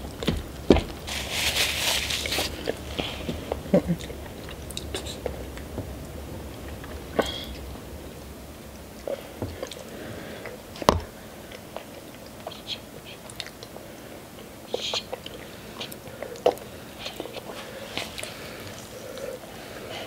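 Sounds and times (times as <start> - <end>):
close chewing and biting: 11.5 - 20.0.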